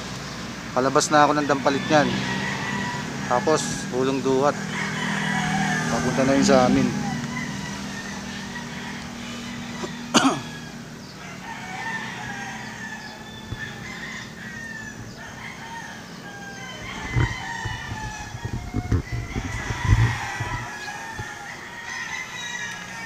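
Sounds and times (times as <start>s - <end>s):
rooster crowing in distance: 0.8s - 23.0s
low bumps: 16.8s - 21.6s.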